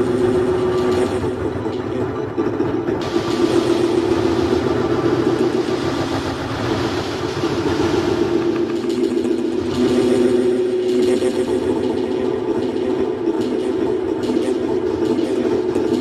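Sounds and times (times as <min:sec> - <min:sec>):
electronic drone: 0:00.0 - 0:16.0
noisy hiss: 0:03.0 - 0:13.5.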